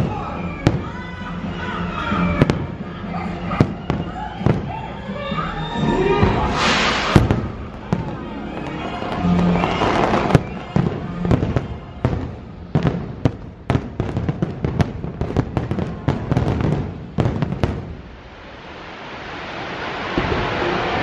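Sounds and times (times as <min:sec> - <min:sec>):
fireworks bursting with sharp bangs: 0:00.0 - 0:01.0, 0:02.4 - 0:02.8, 0:03.4 - 0:04.8, 0:06.2 - 0:18.5, 0:19.9 - 0:21.0.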